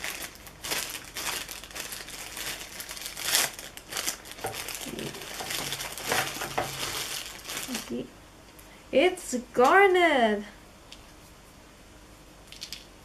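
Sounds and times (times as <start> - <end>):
wrapper crinkling and rustling: 0.0 - 8.1.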